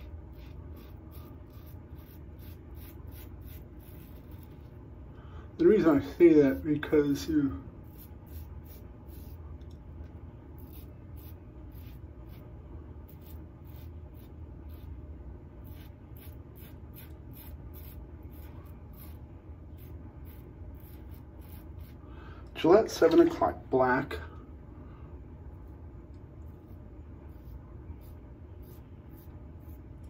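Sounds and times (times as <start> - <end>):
razor scraping stubble: 0.0 - 4.8, 7.8 - 9.8, 10.6 - 15.0, 15.6 - 22.0, 26.4 - 30.0.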